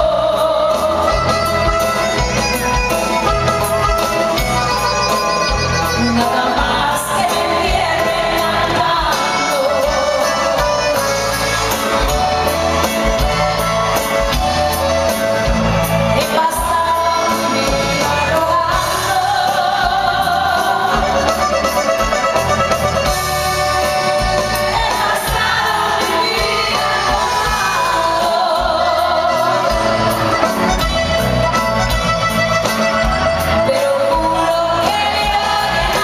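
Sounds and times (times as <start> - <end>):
live norteno band music: 0.0 - 36.0
person singing: 33.4 - 36.0.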